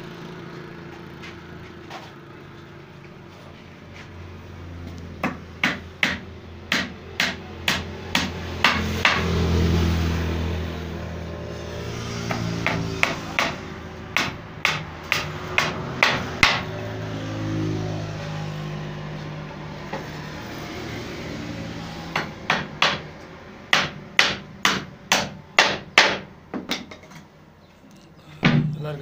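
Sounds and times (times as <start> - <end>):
hammer nailing wooden planks: 5.2 - 9.3, 12.3 - 13.6, 14.2 - 16.7, 22.1 - 23.1, 23.7 - 26.9.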